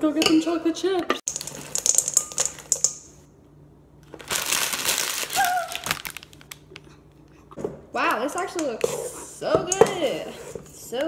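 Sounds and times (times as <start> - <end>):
chocolate chips pouring into pot: 1.3 - 2.9.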